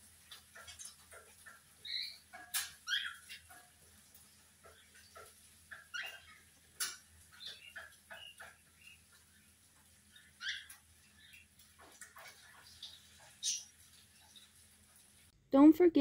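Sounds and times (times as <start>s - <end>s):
cockatiels chirping and squawking: 0.3s - 3.8s, 4.6s - 14.6s.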